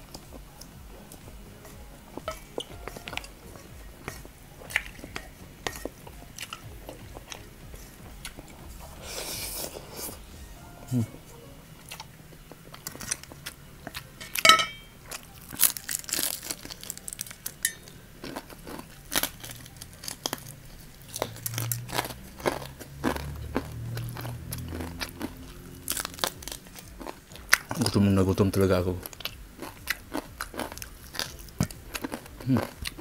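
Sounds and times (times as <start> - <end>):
chewing noodles: 0.0 - 10.2, 11.8 - 14.4, 15.1 - 33.0
crunching fried chicken: 11.8 - 33.0.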